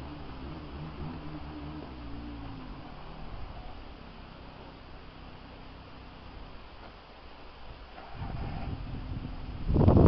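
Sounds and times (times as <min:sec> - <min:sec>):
storm wind hissing: 0:07.6 - 0:10.0
wind rumble on microphone: 0:07.7 - 0:10.0.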